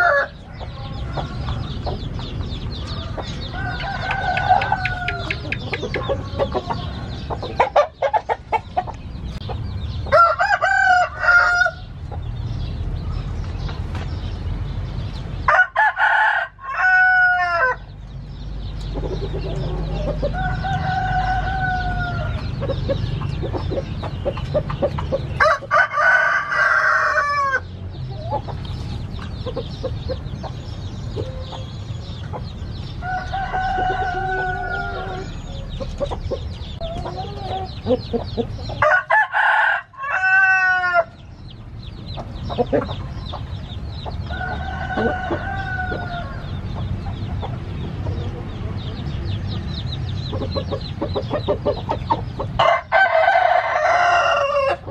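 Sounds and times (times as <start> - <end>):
roosters crowing: 0.0 - 9.0, 9.8 - 12.7, 15.3 - 18.1, 18.9 - 28.8, 29.4 - 54.9
drawn-out clucking calls: 0.0 - 9.7, 18.8 - 25.7, 42.1 - 49.1, 50.3 - 52.8.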